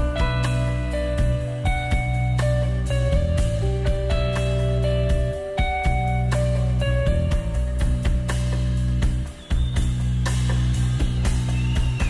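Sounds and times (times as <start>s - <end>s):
electric guitar single notes: 0.0s - 7.8s
low band backing: 0.0s - 12.0s.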